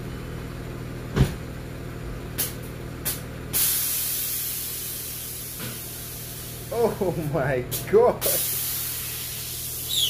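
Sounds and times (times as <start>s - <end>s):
air suspension hissing: 3.5s - 6.7s, 8.2s - 10.0s.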